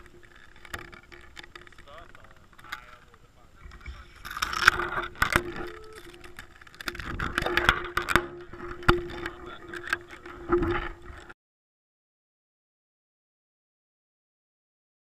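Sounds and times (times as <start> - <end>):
camera handling knocks and rattles: 0.0 - 11.3
faint steady hum: 0.0 - 11.4.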